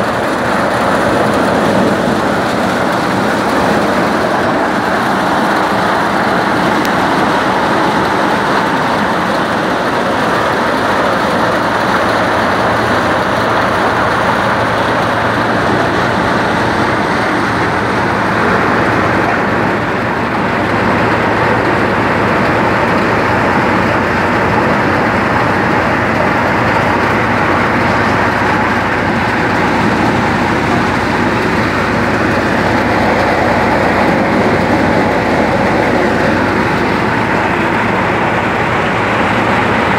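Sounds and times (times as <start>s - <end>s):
threshing drum whirring and rattling: 0.0s - 39.9s
tractor diesel engine running: 0.0s - 39.9s.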